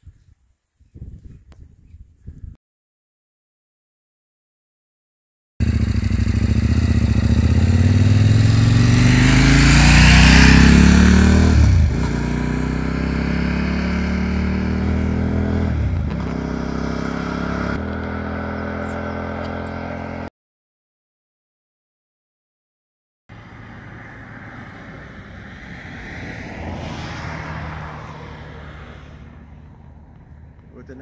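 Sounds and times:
motorcycle engine accelerating: 5.6s - 20.3s, 23.3s - 31.0s.

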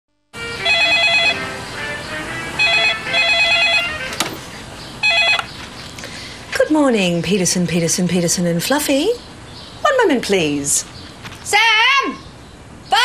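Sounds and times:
electronic telephone ringing: 0.5s - 1.6s, 2.6s - 4.4s, 5.0s - 5.6s.

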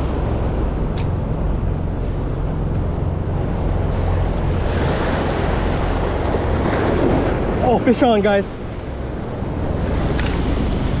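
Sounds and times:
ocean surf: 0.0s - 11.0s
wind buffeting microphone: 0.0s - 11.0s
sharp click: 10.1s - 10.4s.

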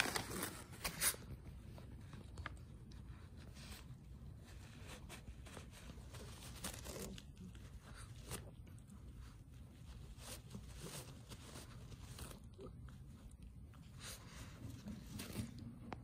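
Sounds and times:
dog tearing and chewing paper: 0.0s - 1.4s, 4.3s - 12.9s.

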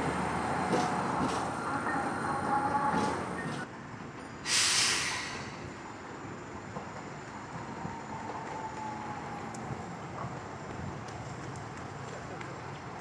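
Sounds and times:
tram rumbling along track: 0.0s - 13.0s
loud hiss: 4.4s - 5.7s.

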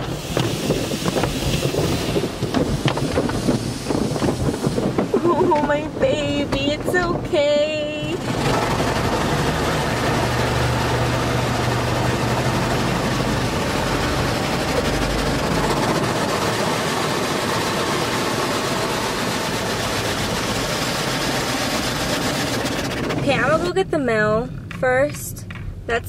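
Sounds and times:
car wash rushing: 0.0s - 24.2s.

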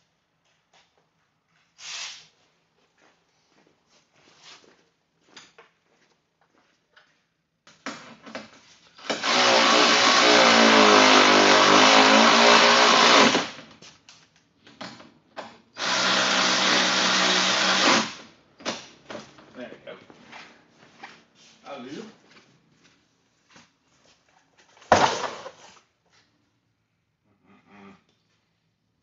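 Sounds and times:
cordless power tool running: 9.0s - 13.6s, 15.8s - 18.2s.

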